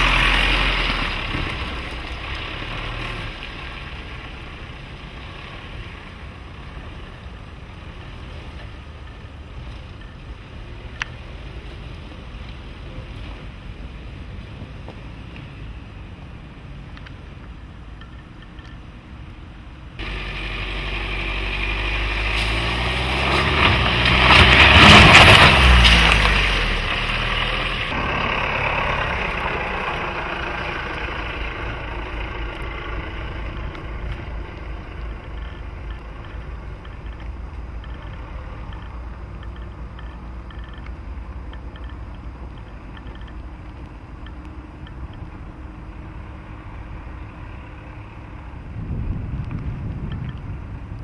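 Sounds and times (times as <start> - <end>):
diesel engine driving past: 0.0 - 7.2, 20.0 - 36.9.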